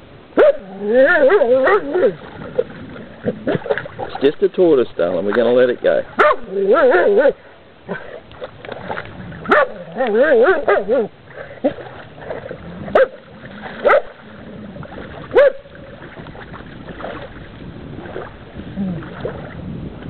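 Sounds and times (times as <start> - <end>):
dog whining: 0.4 - 2.2
dog yipping: 0.4 - 2.2, 6.2 - 7.3, 9.5 - 11.1, 15.4 - 15.6.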